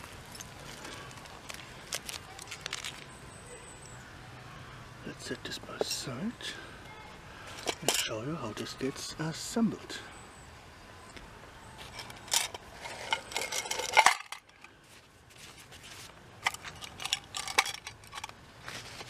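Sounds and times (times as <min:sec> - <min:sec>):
light metallic clinks and knocks: 0:00.0 - 0:03.0, 0:11.8 - 0:14.7, 0:16.4 - 0:18.4.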